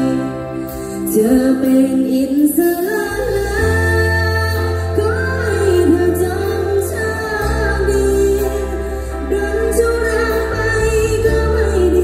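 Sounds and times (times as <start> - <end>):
drums: 0.0 - 12.0
woman singing: 0.0 - 12.0
electric bass: 3.1 - 12.0.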